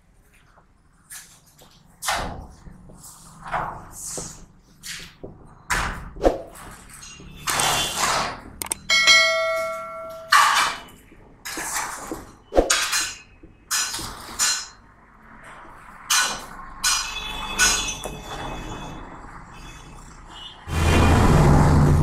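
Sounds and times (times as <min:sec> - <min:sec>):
marker squeaking on whiteboard: 0:06.5 - 0:08.6
bell-like chime: 0:08.9 - 0:10.4.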